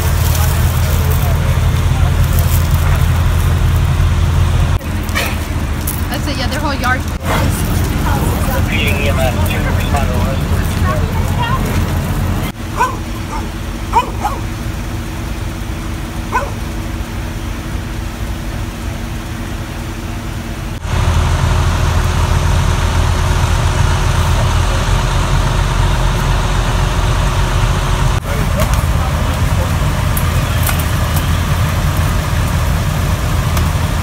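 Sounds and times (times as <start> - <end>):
fire engine motors running: 0.0 - 34.0
dog barking: 12.7 - 14.6, 16.3 - 16.6.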